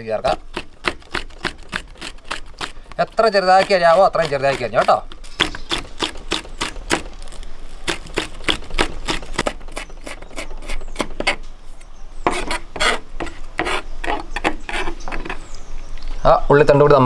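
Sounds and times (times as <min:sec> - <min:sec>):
knife chopping on cutting board: 0:00.3 - 0:07.2.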